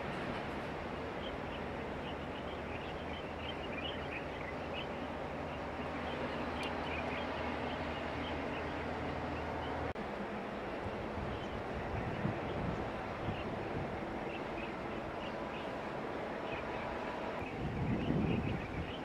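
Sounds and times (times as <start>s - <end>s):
low engine hum: 0.0s - 19.0s
outdoor noise: 0.0s - 19.0s
small birds chirping: 1.0s - 9.9s.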